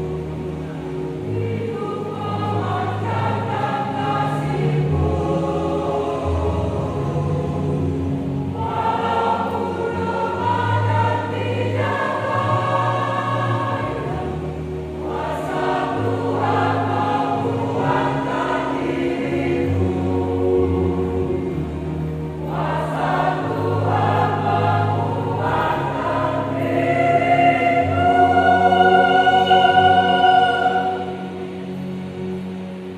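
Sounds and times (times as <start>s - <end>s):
choir singing in harmony: 0.0s - 32.9s.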